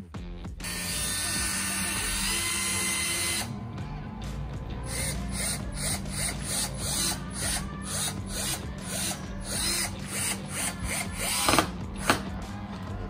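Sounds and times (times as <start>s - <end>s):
cordless drill motor hum: 0.6s - 3.5s.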